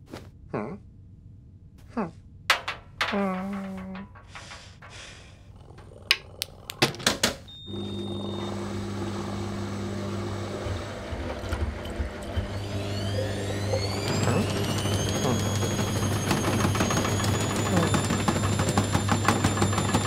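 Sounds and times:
sharp clicks: 5.8s - 7.5s
rising whirring: 5.8s - 18.2s
washing machine motor hum: 6.9s - 20.0s.

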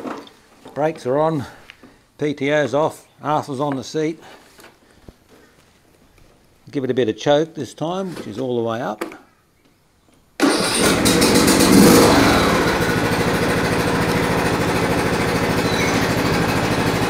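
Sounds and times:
lawn tractor engine starting: 10.4s - 17.0s.

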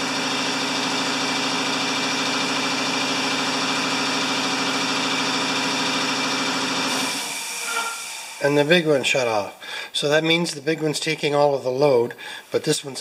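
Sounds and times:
air compressor running: 0.0s - 8.7s.

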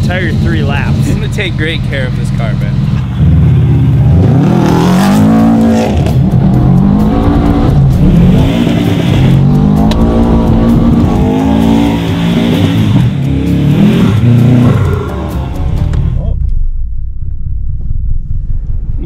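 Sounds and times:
car engine revving hard: 0.2s - 15.5s.

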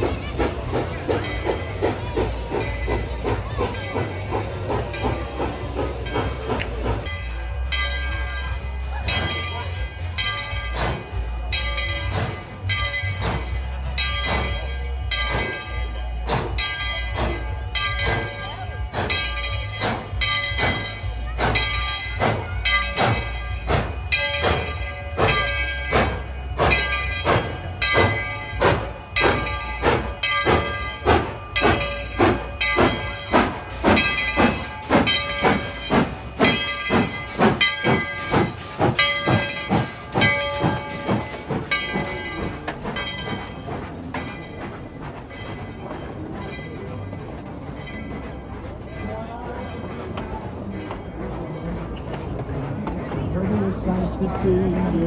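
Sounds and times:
steam locomotive exhaust chuffing: 0.0s - 55.0s
steady hiss of steam: 6.8s - 47.1s.

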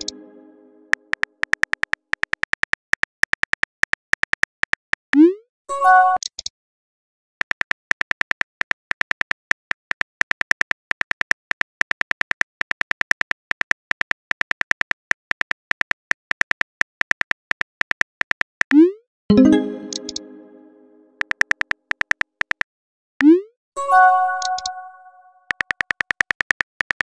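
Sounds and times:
keyboard tap clicks: 19.9s - 20.3s.

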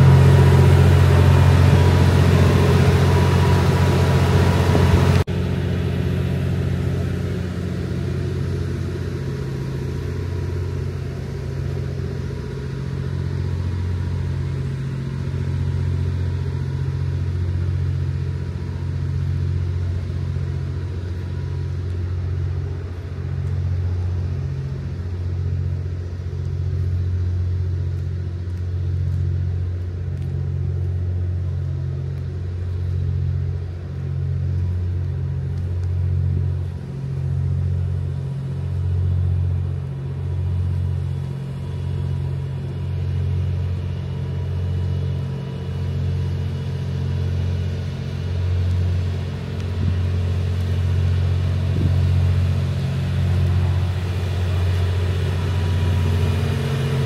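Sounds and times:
train diesel engines droning: 0.0s - 57.0s.

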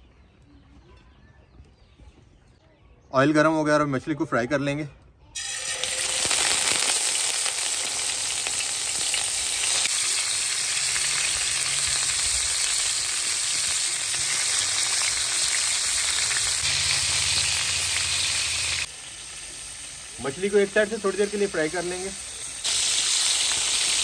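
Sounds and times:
fish sizzling in hot oil: 5.4s - 24.0s.

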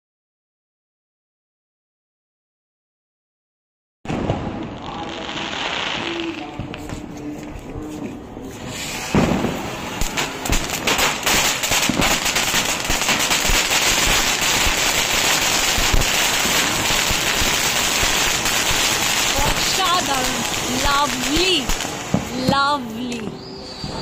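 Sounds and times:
firework hissing and crackling: 4.5s - 7.7s, 8.3s - 24.0s.

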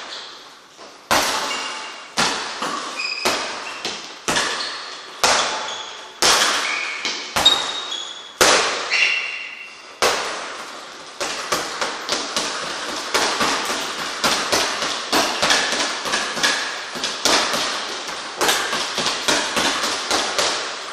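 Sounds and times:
gloved punches hitting a double-end ball: 8.4s - 8.9s, 11.2s - 20.7s.

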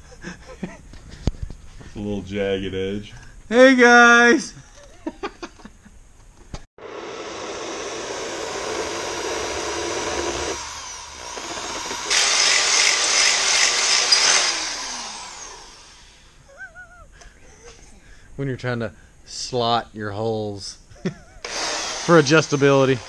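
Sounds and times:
power grinder grinding metal: 6.8s - 16.2s, 21.5s - 23.0s.

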